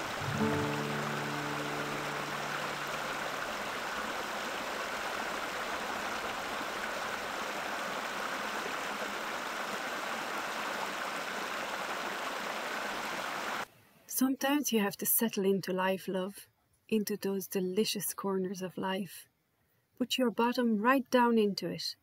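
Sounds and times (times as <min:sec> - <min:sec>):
background music: 0:00.0 - 0:03.5
stream rushing over stones: 0:00.0 - 0:13.7.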